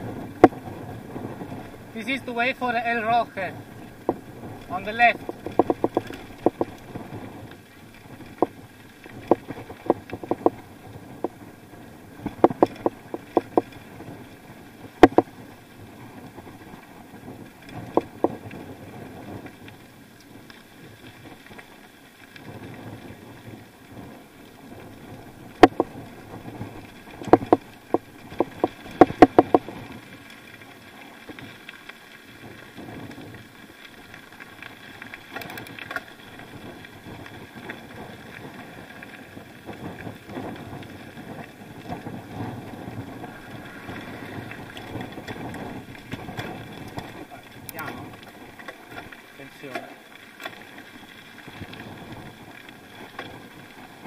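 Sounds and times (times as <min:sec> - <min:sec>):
bicycle rattling clicks over bumps: 0:00.0 - 0:54.0
bicycle tyre noise: 0:00.0 - 0:54.0
wind rushing: 0:41.6 - 0:47.0.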